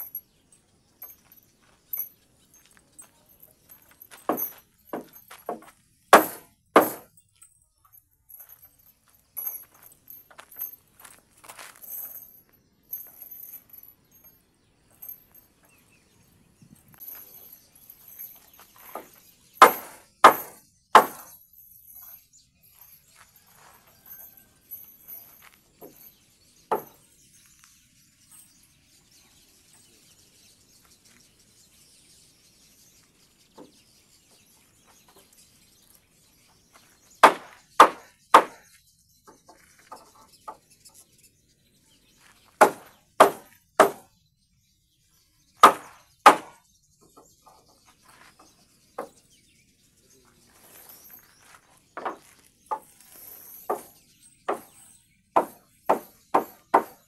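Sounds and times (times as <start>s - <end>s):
hammer blows on timber: 4.2s - 7.1s, 18.9s - 21.3s, 37.2s - 38.6s, 42.6s - 44.1s, 45.6s - 46.6s, 53.7s - 54.8s, 55.4s - 57.0s.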